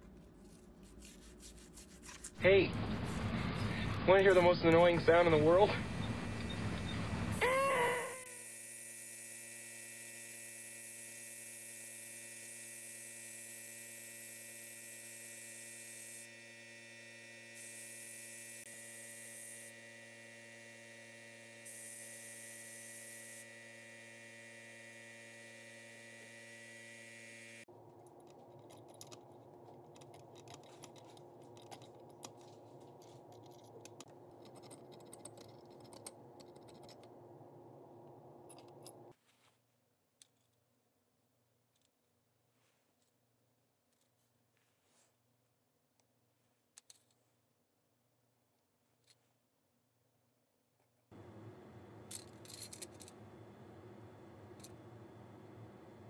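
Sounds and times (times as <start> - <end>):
pick tool scratching metal: 0.4 - 2.4.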